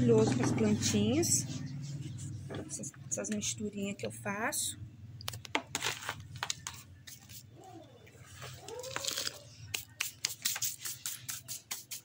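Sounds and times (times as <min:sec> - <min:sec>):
bags crinkling and rustling: 0:08.2 - 0:09.5.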